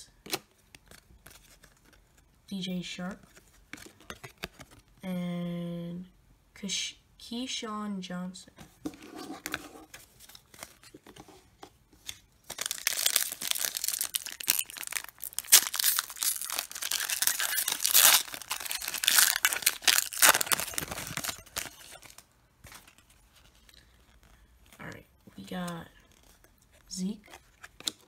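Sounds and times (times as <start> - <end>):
foil wrapper tearing and crinkling: 12.4 - 23.0.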